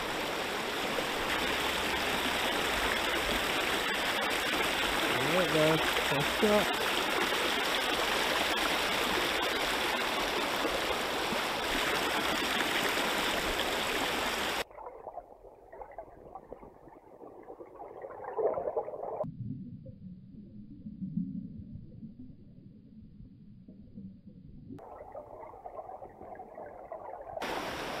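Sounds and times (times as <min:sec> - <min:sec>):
river water flowing: 0:00.0 - 0:19.2, 0:24.8 - 0:28.0.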